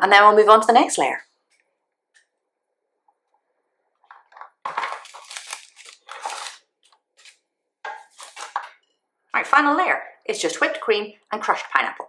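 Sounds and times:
paper crinkling: 4.0s - 8.8s
knife scraping: 4.9s - 6.6s, 7.2s - 8.8s.

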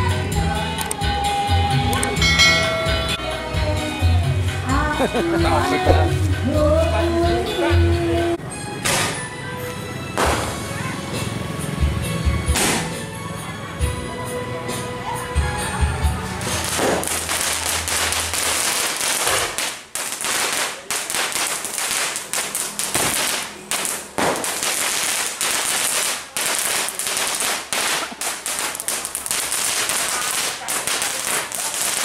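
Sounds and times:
fireworks crackling pops: 10.2s - 10.7s, 12.5s - 13.0s, 16.4s - 32.0s
firework bangs: 10.2s - 10.8s, 12.5s - 13.0s, 16.4s - 32.0s
steady hiss: 17.0s - 32.0s.

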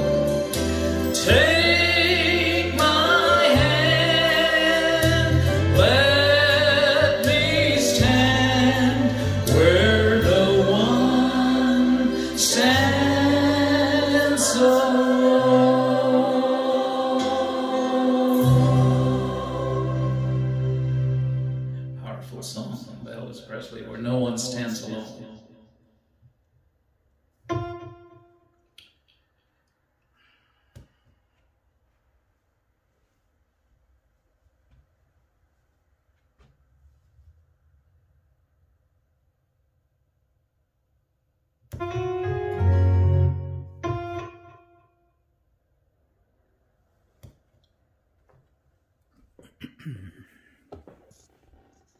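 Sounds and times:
instrumental closing chord: 0.0s - 22.4s.

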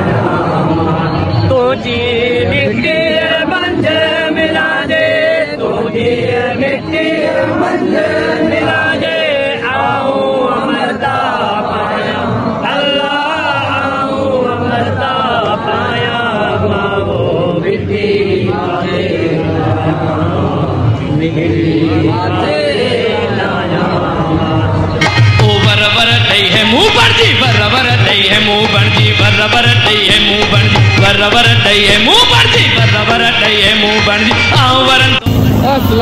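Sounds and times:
men chanting together: 0.0s - 25.0s.

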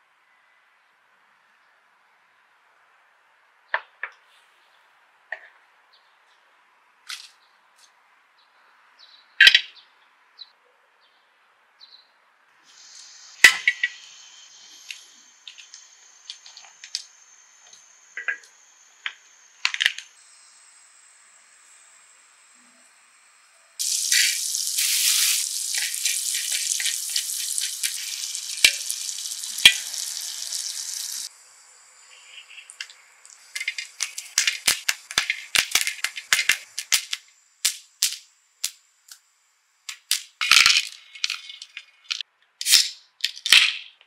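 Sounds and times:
popcorn kernels popping: 12.8s - 17.2s, 18.2s - 20.1s, 23.8s - 31.3s, 32.7s - 38.8s
butter sizzling on a griddle: 19.0s - 31.3s, 32.3s - 38.0s.

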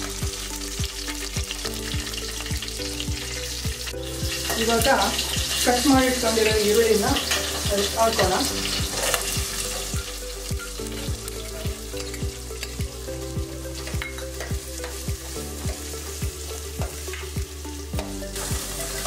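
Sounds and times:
onions sizzling in oil: 0.0s - 19.0s
ladle stirring in pan: 7.1s - 9.9s.

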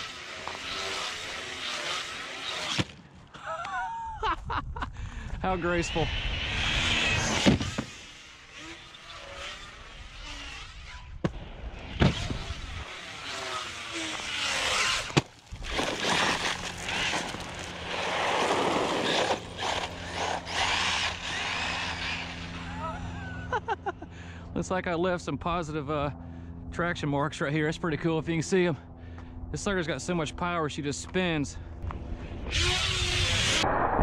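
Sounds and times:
electric motor whining: 0.0s - 3.0s, 5.5s - 23.9s, 31.8s - 33.7s
tyres scrabbling on asphalt: 14.7s - 22.1s.

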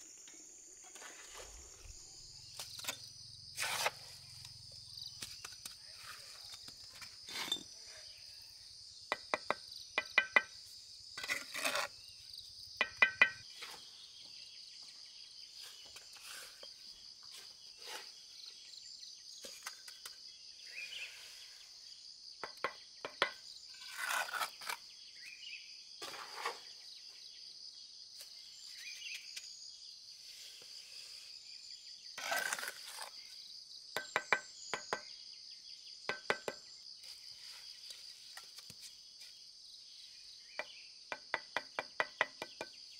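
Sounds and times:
insect drone: 0.0s - 42.9s
trowel scraping through mortar: 3.6s - 4.1s, 7.2s - 7.7s, 11.2s - 12.0s, 23.7s - 24.8s, 32.2s - 33.2s
trowel tapping bricks: 9.1s - 10.6s, 12.8s - 13.4s.

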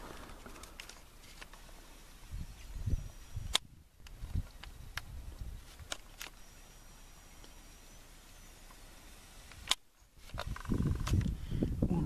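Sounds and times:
sharp clicks: 3.4s - 6.7s, 9.4s - 11.4s.

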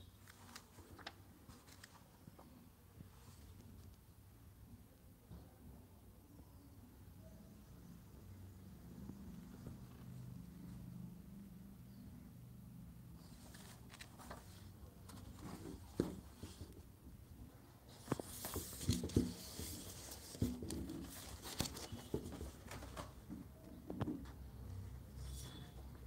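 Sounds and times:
book pages turning: 0.2s - 2.1s, 13.2s - 16.8s, 17.9s - 23.2s.

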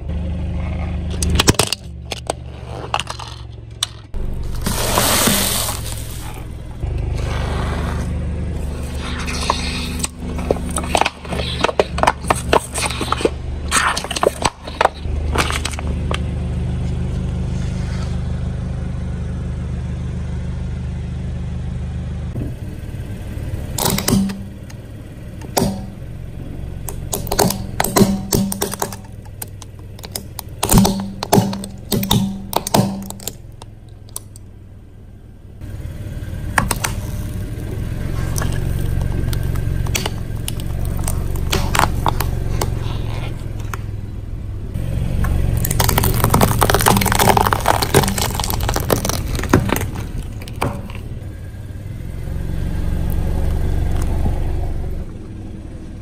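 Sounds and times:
car engine humming: 0.0s - 56.0s
tyre crushing brittle objects: 1.1s - 6.8s, 8.6s - 16.2s, 23.8s - 24.7s, 25.4s - 26.0s, 26.8s - 34.4s, 36.5s - 43.9s, 45.2s - 51.2s.

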